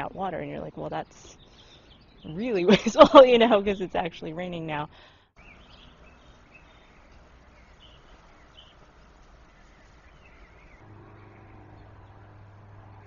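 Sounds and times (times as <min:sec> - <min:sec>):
bird chirps: 0:05.4 - 0:08.8, 0:09.4 - 0:12.3.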